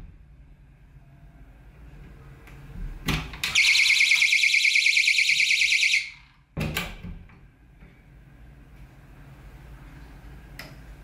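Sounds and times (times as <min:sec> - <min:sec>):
door sensor alarm pulsing tone: 0:03.5 - 0:06.2.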